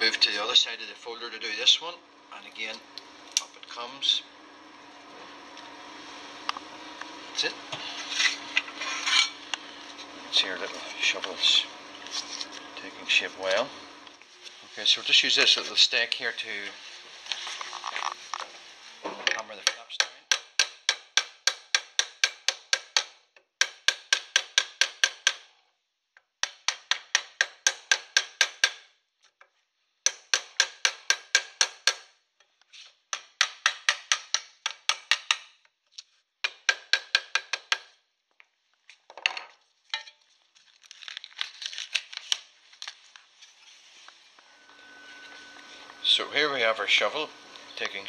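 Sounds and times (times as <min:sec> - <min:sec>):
scraping and rustling: 0:07.7 - 0:13.2, 0:14.1 - 0:19.2, 0:40.2 - 0:48.0
wooden mallet hammering steel: 0:19.6 - 0:25.4, 0:26.4 - 0:28.8, 0:30.1 - 0:32.1, 0:36.4 - 0:37.9.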